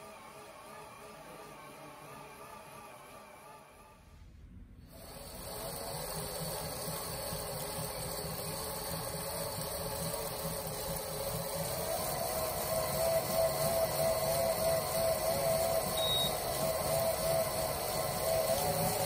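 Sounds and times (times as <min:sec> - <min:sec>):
bike trainer whirring whine: 0:04.9 - 0:19.0.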